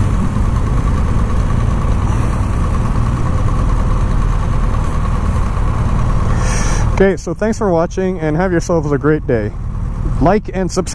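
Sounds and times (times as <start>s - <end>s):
motorcycle engine near idle: 0.0s - 10.9s.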